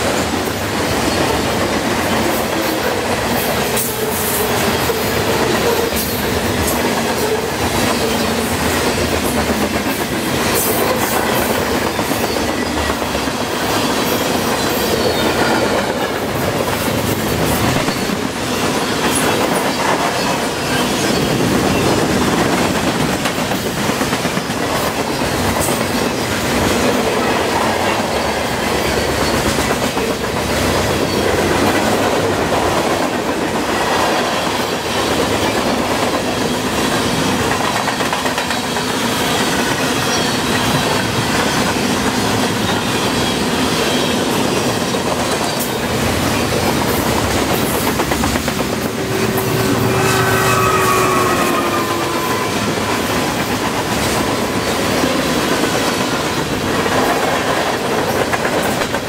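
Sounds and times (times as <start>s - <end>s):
train wheels rumbling on rails: 0.0s - 59.0s.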